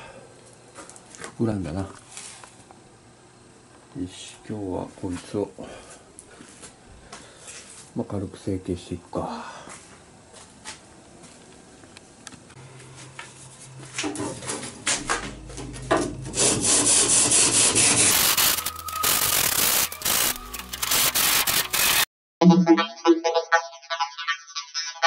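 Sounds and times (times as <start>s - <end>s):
hand saw rasping through foam: 16.4s - 18.3s.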